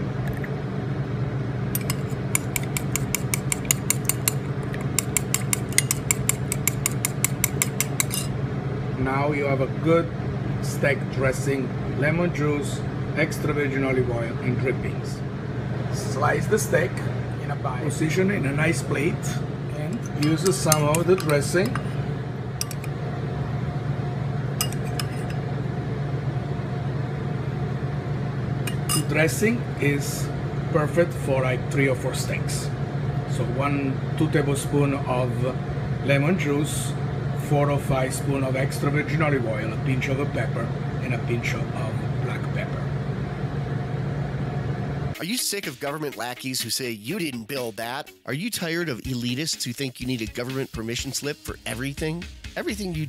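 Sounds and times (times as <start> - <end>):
steady low hum: 0.0 - 46.2
metal spoon clinking ceramic bowl: 1.8 - 8.3, 20.0 - 21.9, 22.6 - 22.9, 24.6 - 25.4, 28.7 - 29.2.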